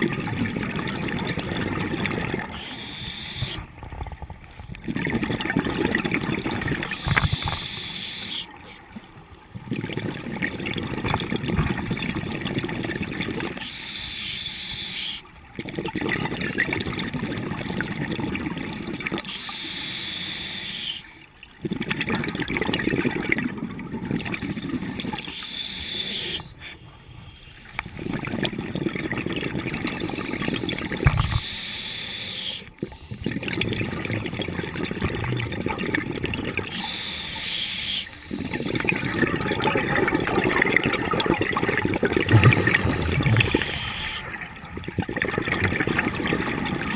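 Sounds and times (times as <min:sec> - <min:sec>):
hissing regulator inhalation: 0:02.6 - 0:03.6, 0:06.9 - 0:08.5, 0:13.6 - 0:15.2, 0:19.3 - 0:21.0, 0:25.2 - 0:27.7, 0:42.2 - 0:44.4
bubbling exhalation underwater: 0:04.8 - 0:07.6, 0:38.3 - 0:46.9.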